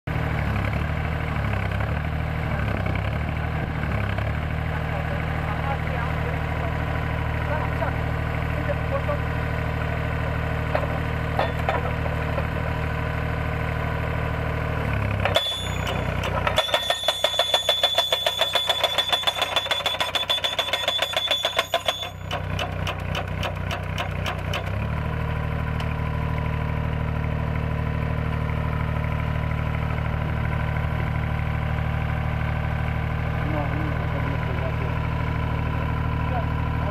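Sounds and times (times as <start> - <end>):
pile driver engine running: 0.1 - 36.9
hydraulic hammer striking steel post: 10.7 - 12.6, 15.2 - 24.8.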